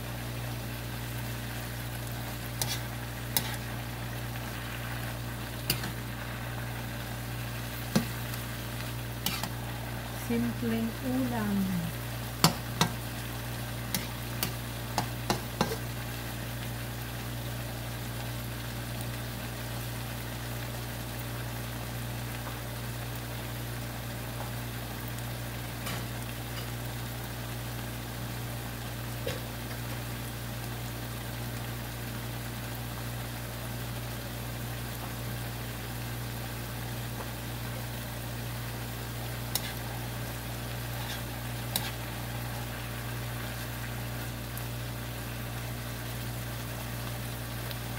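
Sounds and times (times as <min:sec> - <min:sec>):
meat sizzling in a wok: 0:00.0 - 0:47.9.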